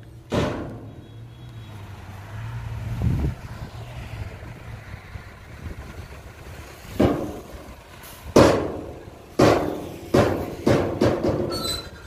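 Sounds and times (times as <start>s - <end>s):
dump truck bed clanging: 0.0s - 1.1s, 6.8s - 12.0s.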